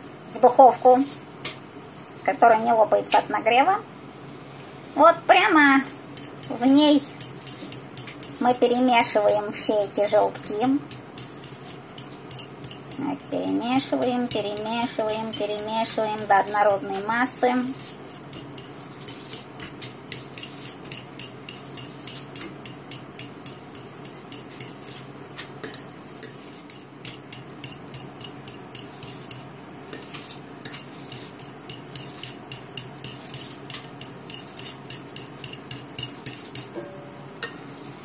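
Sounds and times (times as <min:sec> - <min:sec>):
wet stirring of egg yolks: 0:05.6 - 0:36.8
fork clicking against bowl: 0:06.2 - 0:09.4, 0:10.4 - 0:16.3, 0:18.3 - 0:25.0, 0:25.6 - 0:36.7.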